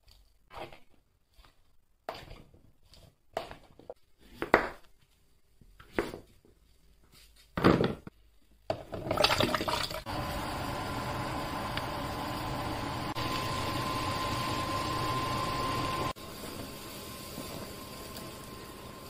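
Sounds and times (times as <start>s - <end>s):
water running: 9.0s - 19.0s.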